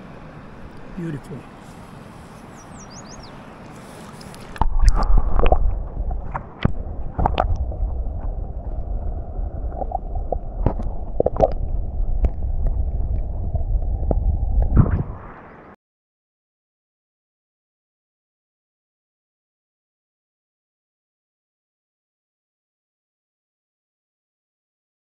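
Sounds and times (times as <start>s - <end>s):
faint river hiss: 0.0s - 5.6s
muffled underwater river rumble: 2.3s - 15.6s
underwater clicks and knocks: 4.3s - 8.8s, 9.7s - 15.1s.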